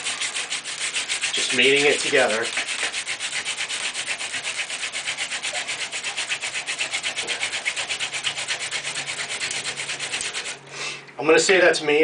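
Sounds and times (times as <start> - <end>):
wood-on-wood scraping: 0.0 - 10.6.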